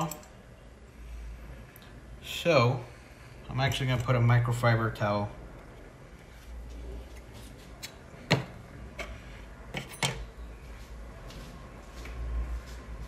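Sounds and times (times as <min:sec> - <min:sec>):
hard parts clacking on table: 0:08.3 - 0:10.3.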